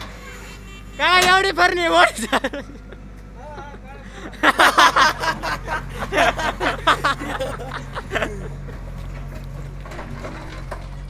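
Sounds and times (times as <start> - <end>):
diesel engine running: 0.0 - 11.0
men's voices: 0.8 - 9.0.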